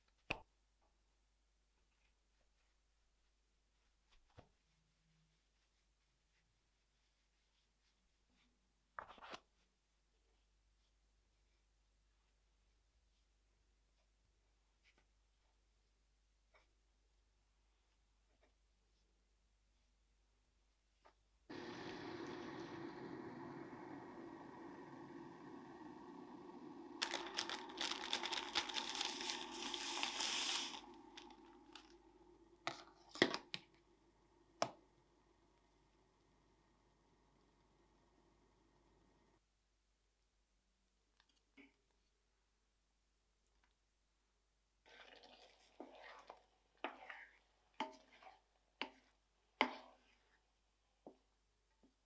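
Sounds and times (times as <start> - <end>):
water boiling and bubbling: 21.5 - 38.8, 44.9 - 47.4
wooden spoon stirring thick sauce: 44.9 - 51.4.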